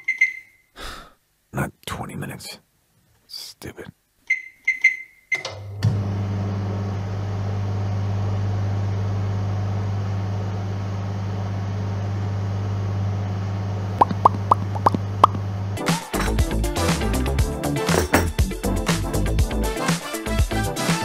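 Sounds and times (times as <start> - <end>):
microwave oven humming: 5.5 - 15.8.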